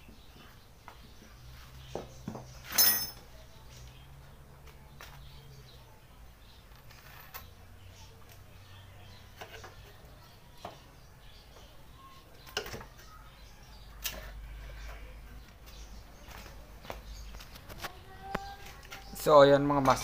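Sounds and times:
ringing metallic clink: 2.7s - 3.3s.

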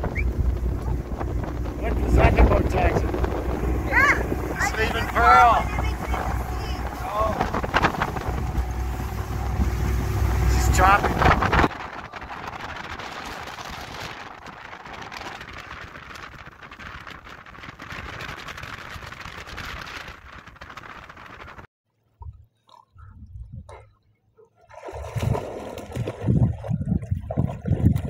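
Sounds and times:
water rushing around a boat: 0.0s - 28.0s
dogs splashing in water: 23.7s - 28.0s.

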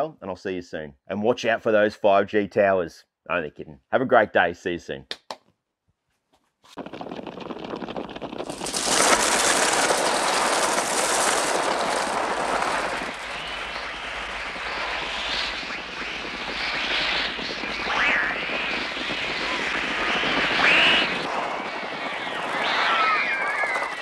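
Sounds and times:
crows' wings rushing: 6.7s - 14.1s, 14.7s - 24.0s.

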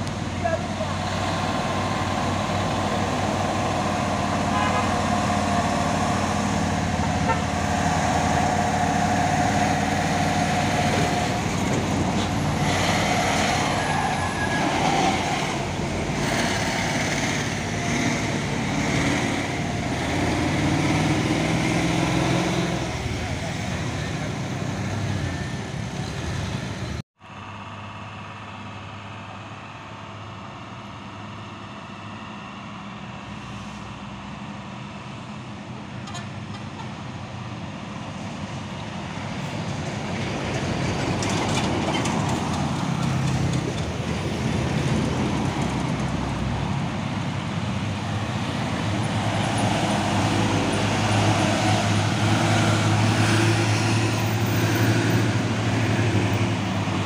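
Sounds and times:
lorry passing with deep engine hum: 0.0s - 36.0s, 37.1s - 57.0s
road traffic engines: 0.0s - 57.0s.

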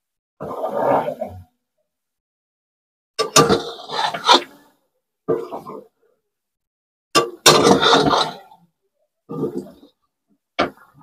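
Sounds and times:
spatula scraping through curry: 3.3s - 4.6s, 7.4s - 8.6s.

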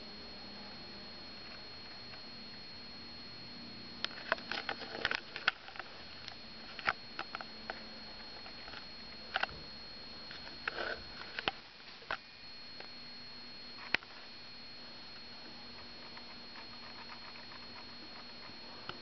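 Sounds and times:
faint high whine: 0.0s - 19.0s
camera handling clicks and rustles: 4.1s - 7.5s, 10.3s - 12.2s.

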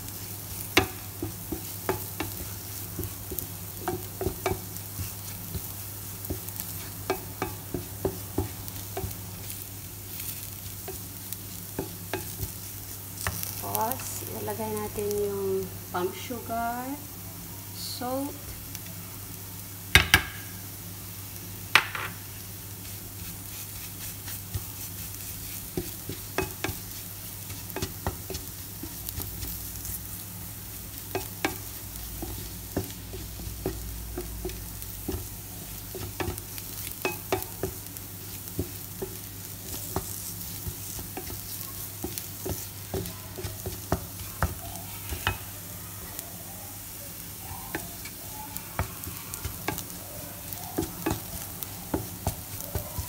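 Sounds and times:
chili paste sizzling in frying pan: 0.0s - 53.0s
spatula scraping and tapping pan: 0.1s - 14.3s, 22.8s - 45.6s, 47.7s - 53.0s.

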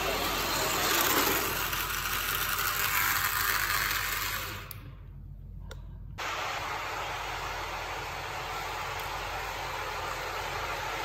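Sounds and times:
model train motor whirring: 0.0s - 4.8s.

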